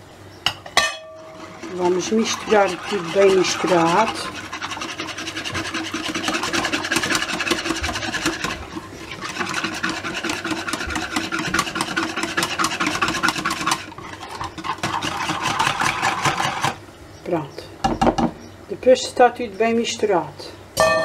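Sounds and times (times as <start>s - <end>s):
whisk beating eggs in a bowl: 1.3s - 16.8s.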